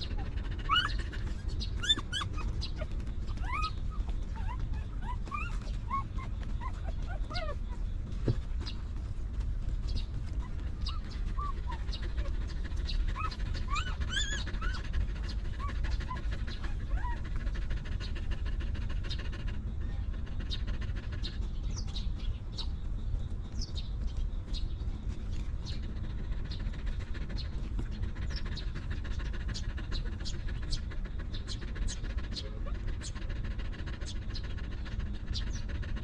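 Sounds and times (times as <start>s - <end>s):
puppies squeaking: 0.0s - 8.8s, 9.8s - 17.5s
dog panting: 0.0s - 36.0s.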